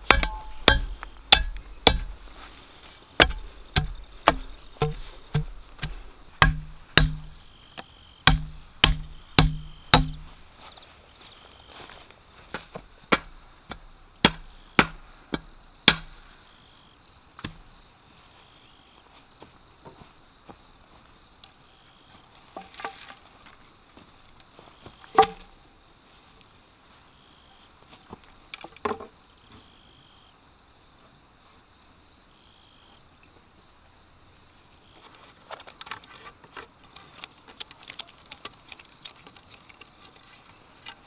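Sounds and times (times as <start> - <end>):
metal bar pounding bamboo post: 0.0 - 2.3, 3.2 - 7.5, 8.2 - 10.4, 14.2 - 16.1
bamboo poles clattering: 0.0 - 10.8, 22.4 - 25.6, 28.0 - 29.2, 35.0 - 41.0
insects chirping: 0.0 - 41.0.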